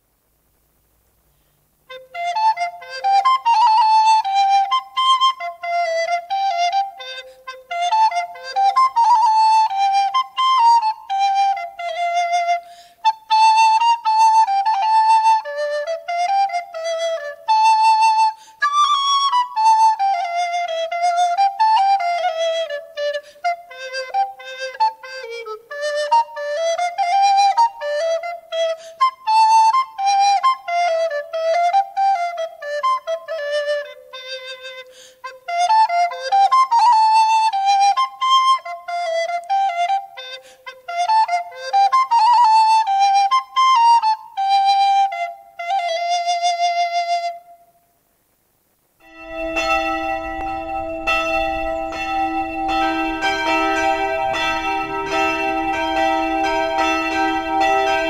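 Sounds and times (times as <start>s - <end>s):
recorder playing lively melody: 1.9s - 47.4s, 49.0s - 58.0s
church bells ringing: 49.1s - 58.0s.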